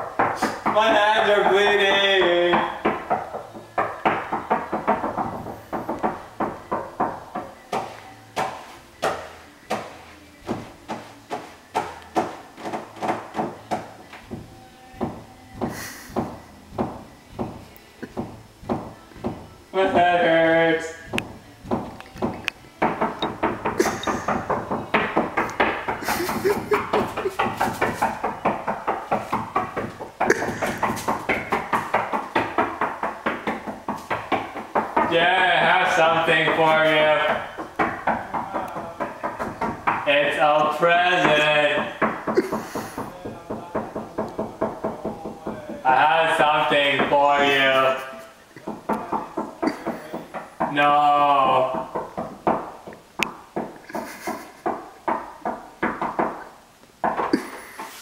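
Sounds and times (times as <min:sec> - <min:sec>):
rapid hand drumming: 0:21.1 - 0:40.2.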